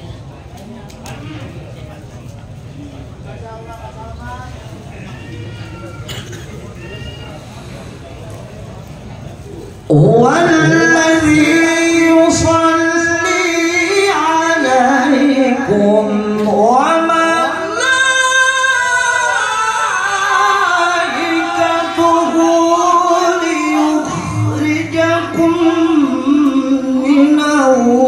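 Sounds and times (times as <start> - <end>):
man reciting melodically through microphone: 9.9 - 28.0.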